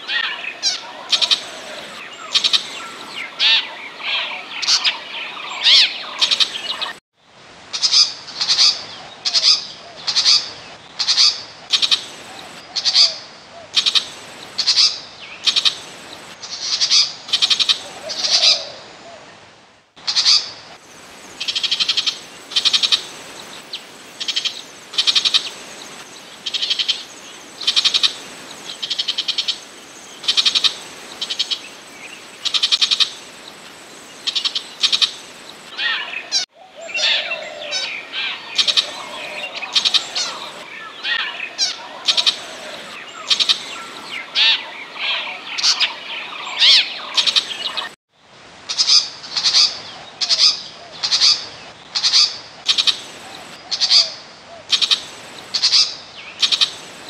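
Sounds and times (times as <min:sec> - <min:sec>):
bird harsh calls: 0:00.0 - 0:07.0, 0:34.1 - 0:48.0, 0:48.7 - 0:57.0.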